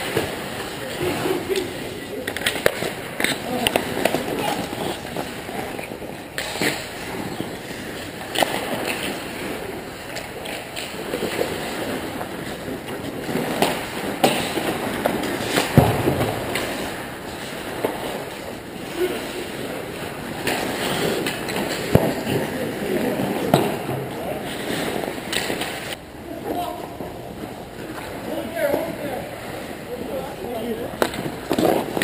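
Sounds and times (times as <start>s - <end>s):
hockey sticks and puck knocking: 0.0s - 9.4s, 10.1s - 18.5s, 20.3s - 24.0s, 30.9s - 32.0s
skate blades scraping ice: 0.0s - 26.0s, 30.6s - 32.0s.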